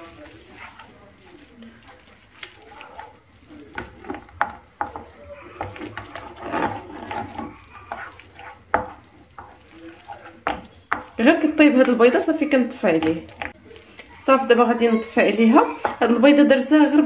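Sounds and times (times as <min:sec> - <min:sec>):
spatula scraping frying pan: 0:00.0 - 0:16.3
food frying: 0:00.0 - 0:17.0
spatula knocking against pan: 0:03.8 - 0:09.6, 0:10.4 - 0:12.2.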